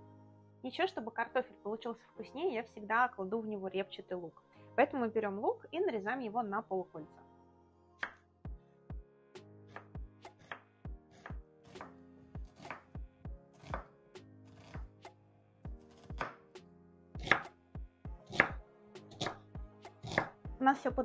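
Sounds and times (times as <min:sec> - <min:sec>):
knife strokes on wooden board: 0:17.2 - 0:17.4, 0:18.3 - 0:19.4.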